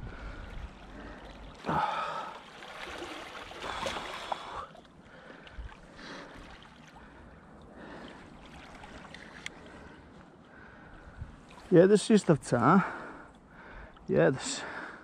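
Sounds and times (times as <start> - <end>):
moving water: 0.0 - 15.0
fish splashing in water: 0.4 - 9.7.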